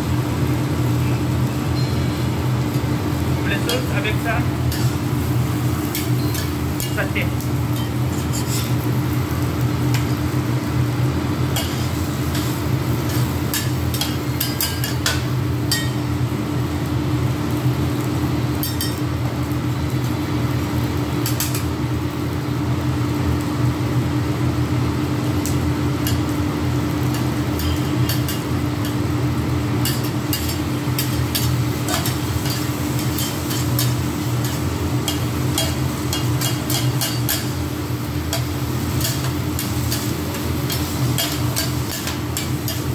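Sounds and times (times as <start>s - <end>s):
onion and pepper sizzling: 0.0s - 42.9s
steady low hum: 0.0s - 42.9s
metal spatulas scraping on griddle: 5.9s - 8.9s, 11.5s - 16.0s, 29.8s - 37.6s, 38.3s - 42.9s.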